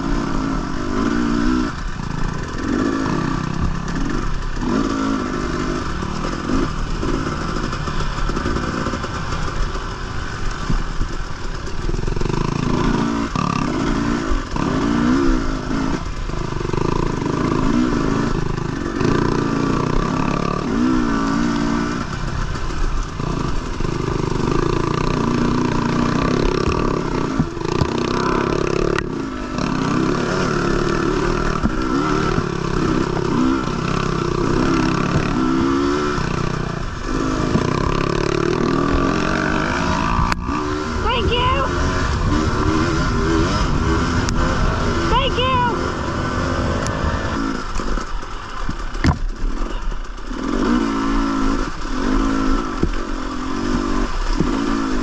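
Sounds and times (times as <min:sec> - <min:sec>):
dirt bike engine revving: 0:00.0 - 0:55.0
bike knocks and rattles: 0:48.1 - 0:50.2.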